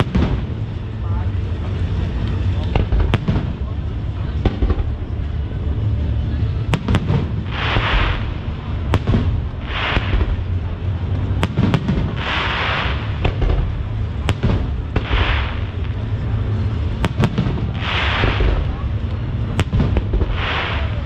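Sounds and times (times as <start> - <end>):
low rumble: 0.0 - 21.0
firework shells bursting: 6.7 - 10.6, 11.2 - 16.3, 16.9 - 18.8.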